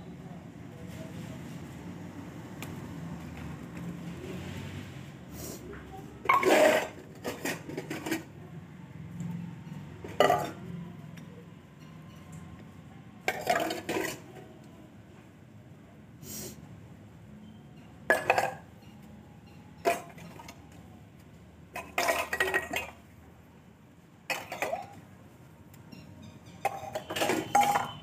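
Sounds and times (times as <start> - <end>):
steel utensils clattering: 6.3 - 8.3, 10.0 - 10.6, 21.7 - 23.0, 24.3 - 25.0, 26.3 - 28.0.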